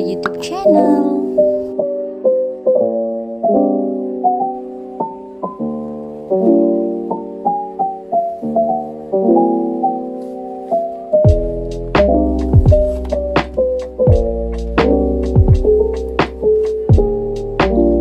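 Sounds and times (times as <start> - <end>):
gentle piano melody: 0.0 - 18.0
deep bass and drum hit: 11.3 - 11.6, 12.5 - 13.0, 14.1 - 14.6.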